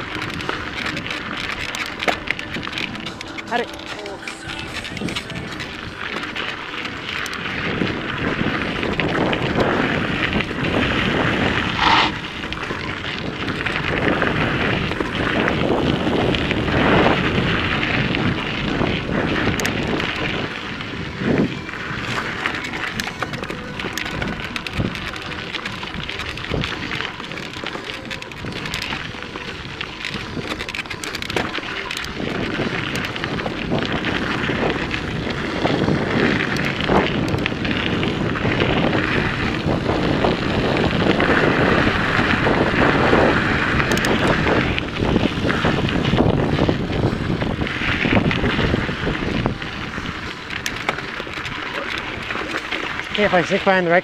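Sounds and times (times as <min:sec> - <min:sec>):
clicks and rattles: 0:00.0 - 0:07.5, 0:22.0 - 0:33.2, 0:43.8 - 0:44.3
bike tyres rolling on rocky trail: 0:00.0 - 0:54.0
wind buffeting microphone: 0:00.0 - 0:54.0.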